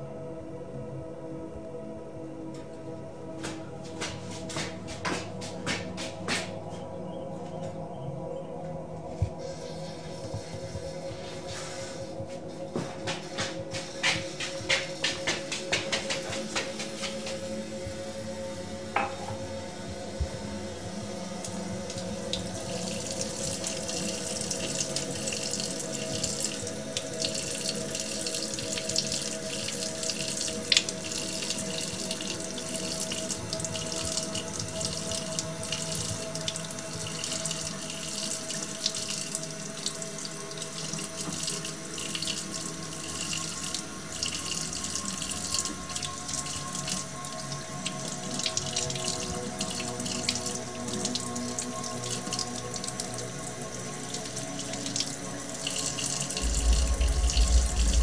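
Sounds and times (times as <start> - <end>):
tap water splashing in steel sink: 12.8 - 17.4.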